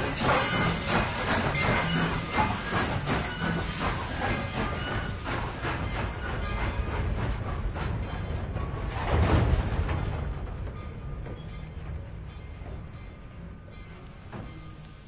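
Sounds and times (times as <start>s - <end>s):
steady steam hiss: 0.0s - 8.5s, 12.2s - 15.0s
steam locomotive chuffing: 0.0s - 15.0s.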